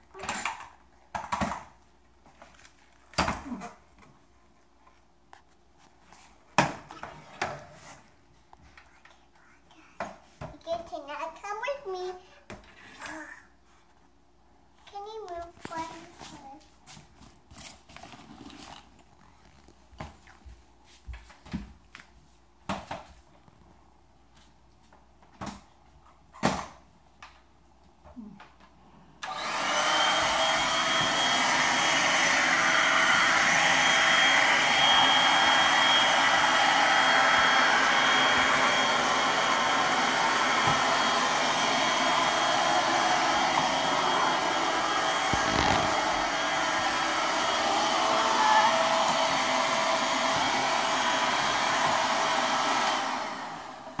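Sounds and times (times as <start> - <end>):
handheld vacuum cleaner whining: 29.2 - 54.0.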